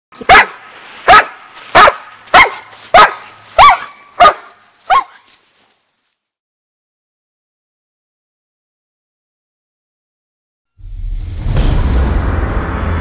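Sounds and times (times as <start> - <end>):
dog barking: 0.2 - 5.3.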